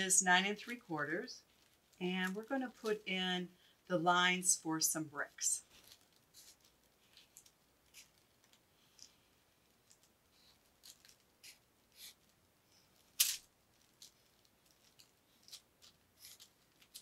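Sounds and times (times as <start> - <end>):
marker scratching on paper: 11.4 - 12.2, 16.2 - 16.5.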